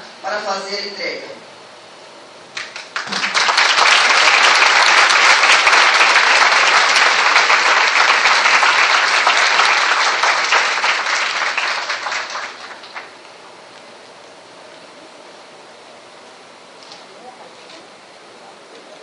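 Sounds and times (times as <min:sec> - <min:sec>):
audience applauding: 0:02.5 - 0:13.3.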